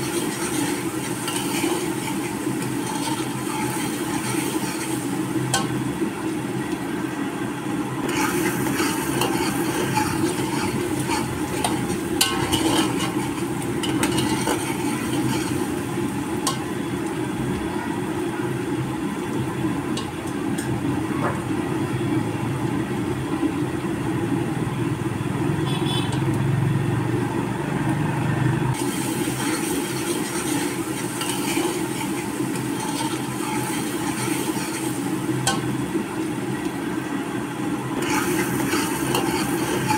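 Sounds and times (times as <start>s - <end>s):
stirring with ladle: 0.0s - 5.2s, 8.1s - 15.7s, 29.0s - 35.1s
pot bubbling: 0.0s - 39.9s.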